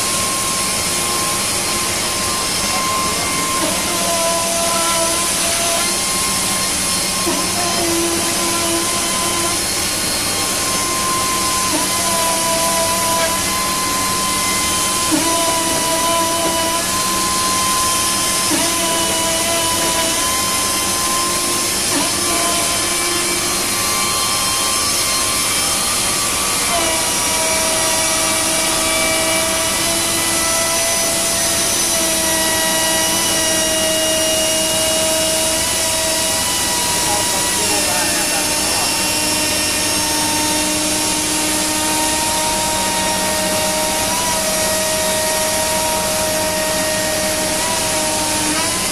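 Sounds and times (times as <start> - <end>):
router spindle hissing: 0.0 - 48.9.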